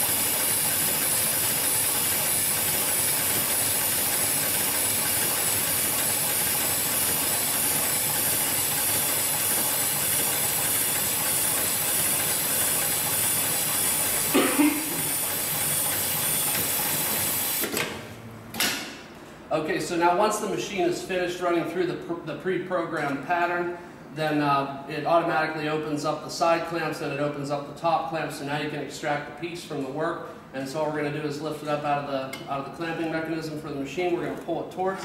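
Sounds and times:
sewing machine whirring: 0.0s - 18.1s.

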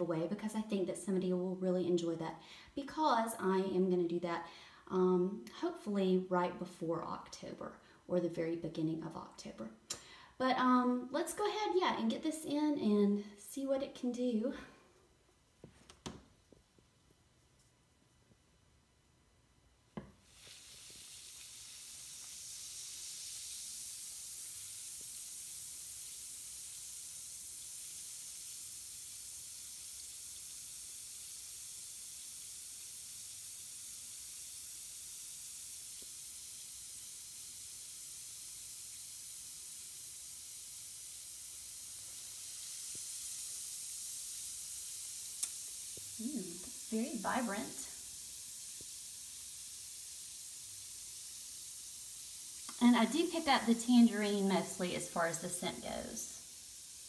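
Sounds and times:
bath bomb fizzing: 20.0s - 57.0s.

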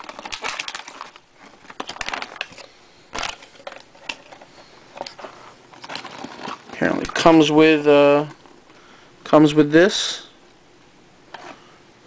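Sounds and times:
paper and plastic crinkling: 0.0s - 7.5s.

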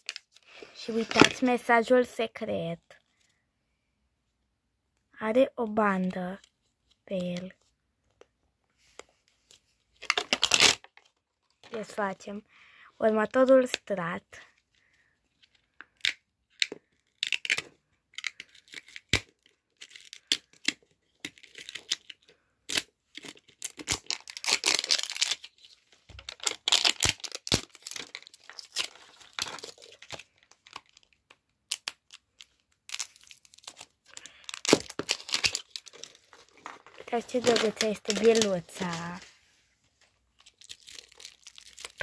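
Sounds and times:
plastic wrapper tearing and crinkling: 0.0s - 1.5s, 10.0s - 11.8s, 15.4s - 39.3s, 40.3s - 42.0s.

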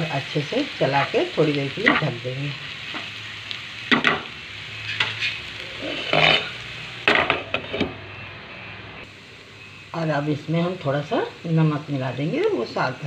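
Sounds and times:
light sizzle: 0.0s - 13.0s
spatula scraping pan: 4.8s - 6.6s.

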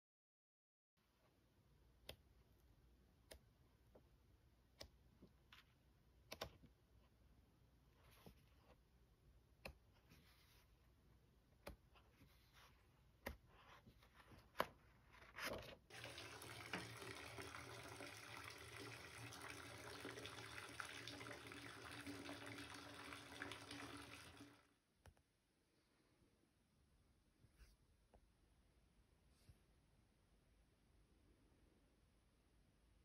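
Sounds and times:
paper pages turning: 11.6s - 15.9s
tap water pouring into bathtub: 15.9s - 24.7s.

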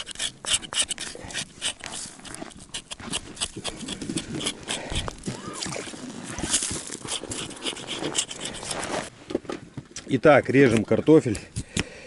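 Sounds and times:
rough scraping strokes on fish skin: 0.0s - 9.1s.

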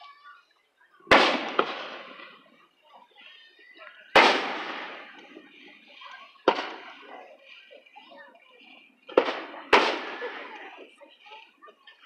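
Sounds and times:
firework shells bursting: 1.1s - 2.4s, 4.2s - 5.4s, 6.4s - 7.1s, 9.1s - 10.8s.

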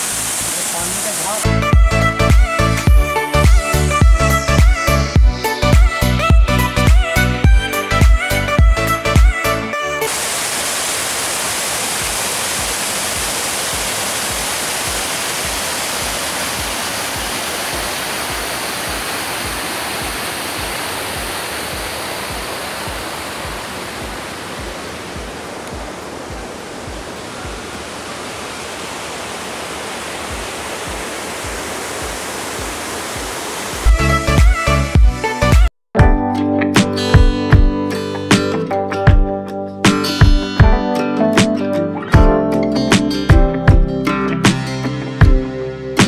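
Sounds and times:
waterfall rushing over rocks: 0.0s - 1.5s, 10.1s - 34.9s
background music beat: 1.4s - 10.1s, 33.8s - 46.0s.

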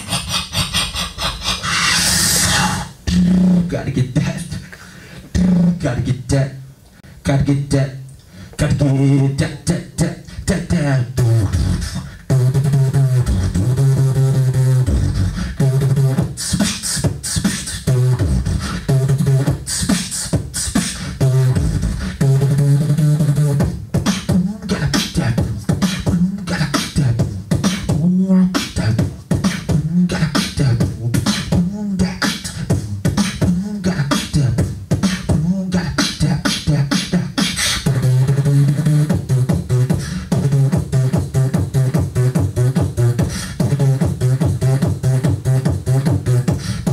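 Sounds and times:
hissing hi-hat sounds: 0.0s - 3.0s, 11.5s - 46.9s
beatboxed kick and snare: 0.0s - 5.8s, 8.5s - 46.9s
humming bass line: 8.7s - 16.4s, 17.7s - 19.7s, 21.2s - 46.9s.

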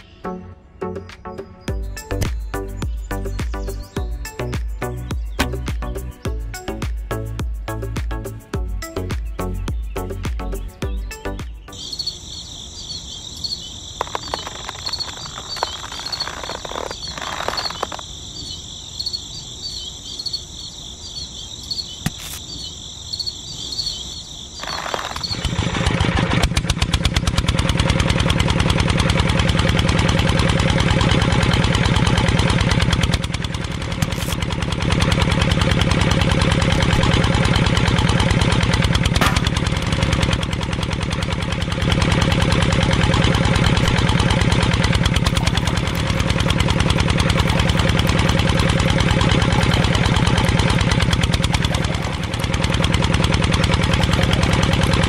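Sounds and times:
high even chirping: 10.0s - 25.4s
miniature engine running: 14.0s - 18.0s, 24.6s - 55.0s.

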